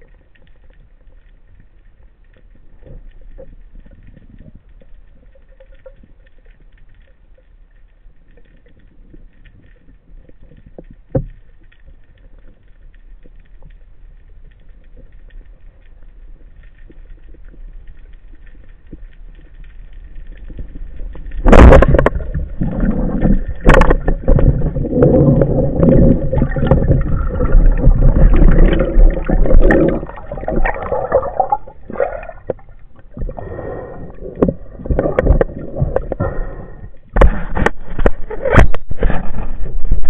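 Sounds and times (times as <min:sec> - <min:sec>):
speargun firing crack underwater: 0:21.4 - 0:22.4, 0:23.5 - 0:24.5
churning water and knocking: 0:21.4 - 0:33.2.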